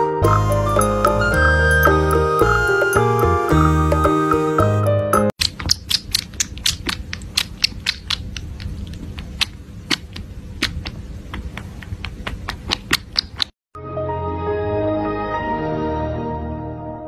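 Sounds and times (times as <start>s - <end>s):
kitten suckling from bottle: 5.4s - 13.5s.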